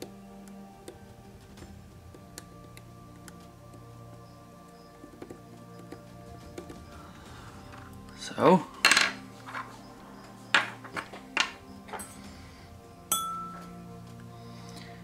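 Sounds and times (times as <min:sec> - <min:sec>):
soft background music: 0:00.0 - 0:15.0
metal tools clinking: 0:08.8 - 0:09.8, 0:10.5 - 0:12.2.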